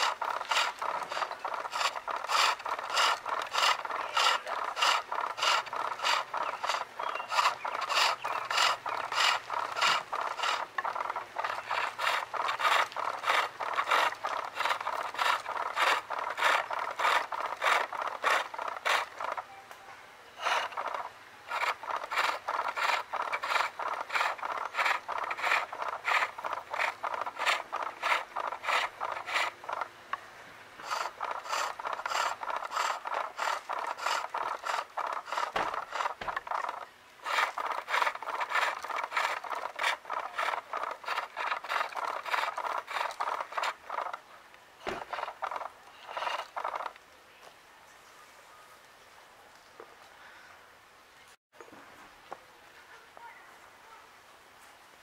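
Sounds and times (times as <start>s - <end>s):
chisel rasping on lathe wood: 0.0s - 19.4s, 20.4s - 29.9s, 30.8s - 44.2s, 44.9s - 46.9s.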